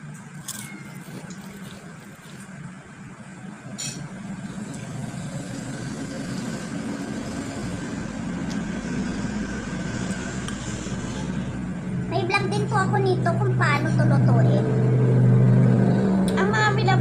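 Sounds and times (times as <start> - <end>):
passing vehicle engine rumble: 4.3 - 17.0.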